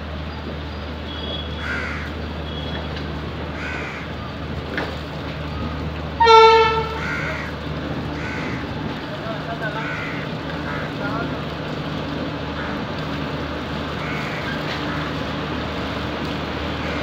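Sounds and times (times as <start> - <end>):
low train rumble: 0.0 - 17.0
train horn toot: 1.1 - 1.8, 6.2 - 7.3
crows cawing: 1.6 - 2.1, 3.6 - 4.1, 6.9 - 8.8, 9.7 - 11.1, 12.5 - 12.9, 14.0 - 15.2.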